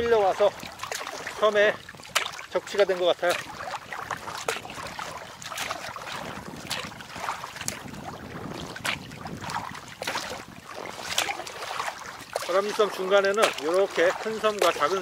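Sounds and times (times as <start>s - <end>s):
paddle strokes: 0.0s - 15.0s
small waves slapping: 0.0s - 15.0s
water splashing around kayak: 0.0s - 15.0s
wind noise on microphone: 0.0s - 15.0s.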